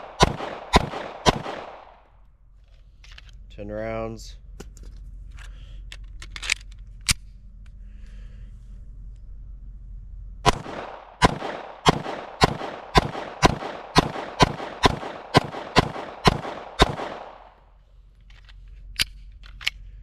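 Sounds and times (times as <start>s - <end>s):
pistol shots: 0.0s - 2.0s, 10.4s - 17.6s.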